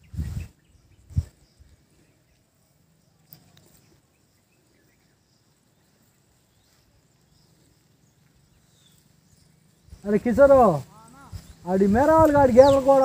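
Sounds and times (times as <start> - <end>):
faint click: 3.2 - 3.8.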